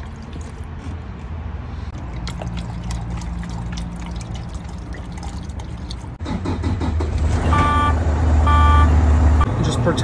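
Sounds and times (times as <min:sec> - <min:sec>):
liquid trickling into metal tank: 0:00.0 - 0:00.7, 0:02.0 - 0:06.2.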